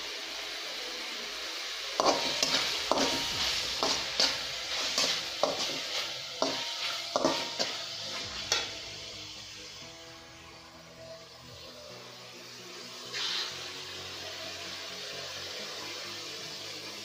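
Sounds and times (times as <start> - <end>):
masala sizzling: 0.0 - 17.0
spatula scraping metal pan: 2.0 - 8.9.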